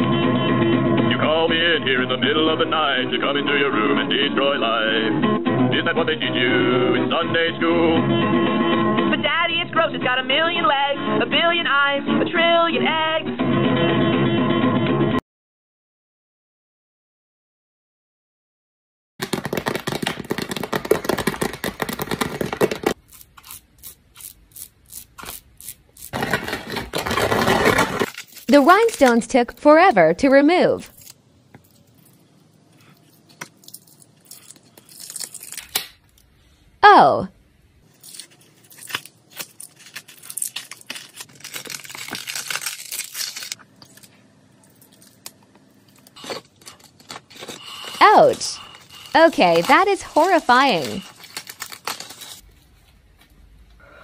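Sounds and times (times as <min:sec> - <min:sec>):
rhinestones crackling off skin: 0:19.2 - 0:26.2, 0:30.8 - 0:36.3, 0:38.0 - 0:44.1
scratchy scrapes: 0:46.2 - 0:51.2.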